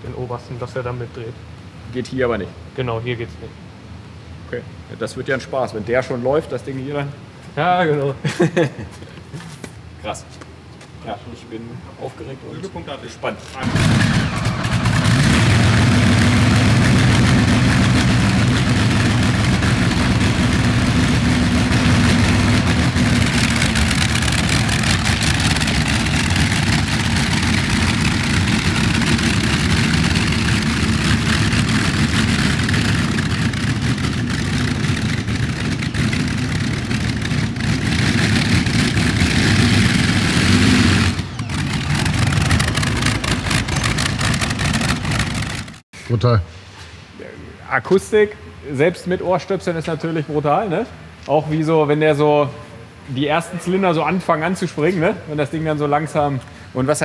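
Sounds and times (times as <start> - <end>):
aircraft engines idling rough: 12.0 - 45.8.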